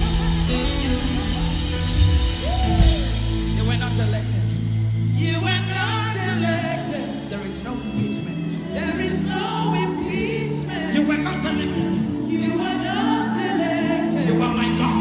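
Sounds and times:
voices singing gospel: 0.0s - 4.0s, 5.1s - 15.0s
sustained chords: 0.0s - 6.2s
drum kit playing: 0.0s - 6.9s.

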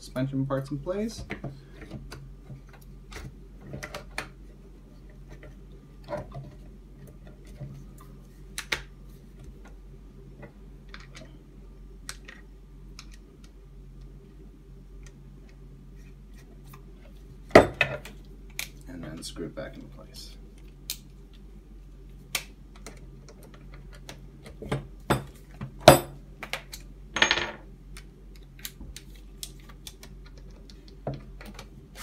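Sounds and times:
faint steady hum: 0.0s - 32.0s.

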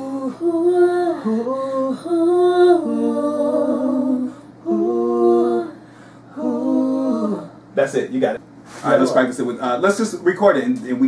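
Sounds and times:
choir singing a cappella: 0.0s - 7.8s.

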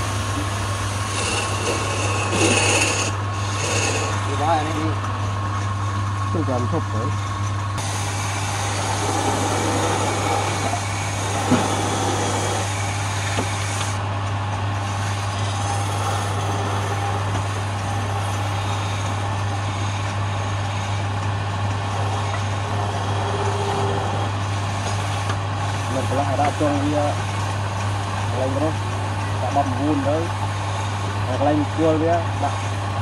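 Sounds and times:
wood lathe humming: 0.0s - 33.0s.

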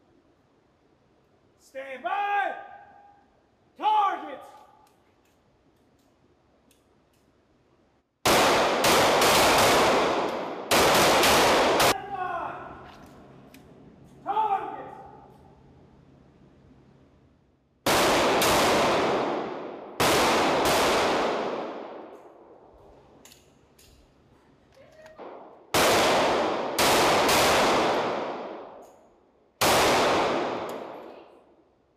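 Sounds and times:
pistol shots with echo: 8.2s - 12.0s, 17.8s - 22.4s, 25.2s - 28.8s, 29.6s - 31.1s.

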